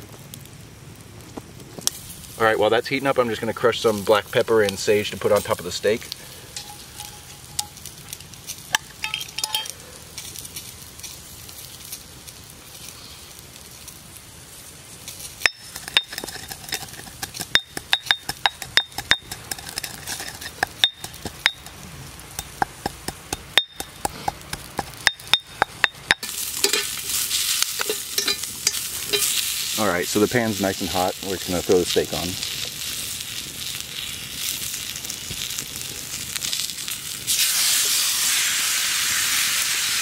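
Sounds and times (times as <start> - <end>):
onions sizzling in skillet: 0.0 - 40.0
pestle grinding in stone mortar: 15.4 - 29.4.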